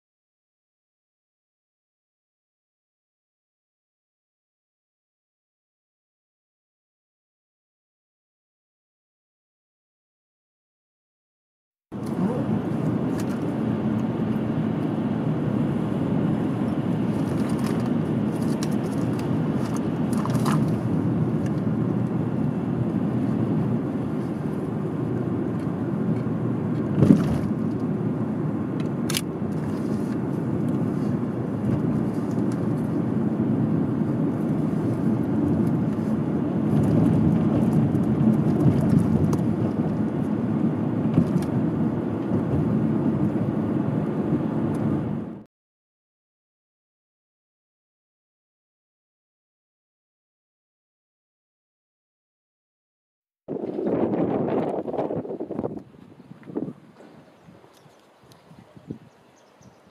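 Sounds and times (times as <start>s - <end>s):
car engine and tyre noise: 12.0s - 45.4s.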